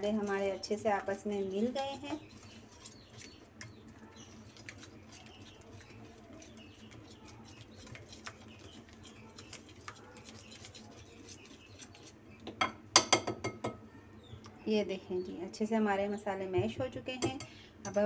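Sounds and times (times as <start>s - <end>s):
whisk scraping wet marinade: 0.0s - 12.5s.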